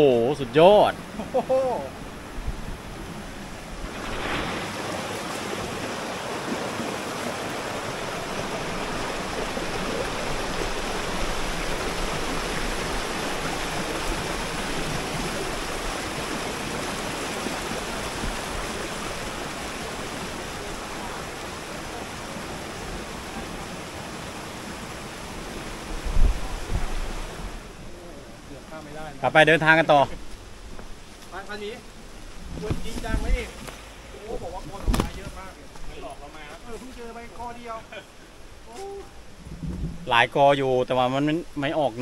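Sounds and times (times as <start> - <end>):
waterfall rushing: 0.0 - 30.1.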